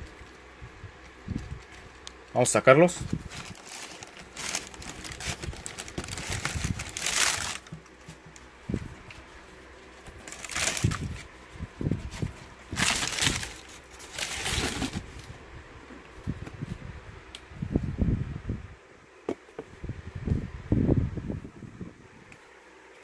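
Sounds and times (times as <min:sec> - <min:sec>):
tissue paper rustling: 0:03.0 - 0:08.2, 0:10.0 - 0:11.3, 0:12.0 - 0:15.3.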